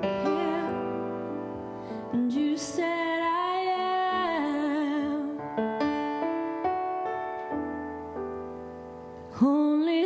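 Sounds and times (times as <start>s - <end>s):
woman singing with vibrato: 0.0s - 1.4s, 2.1s - 5.5s, 9.4s - 10.0s
slow piano notes: 0.0s - 10.0s.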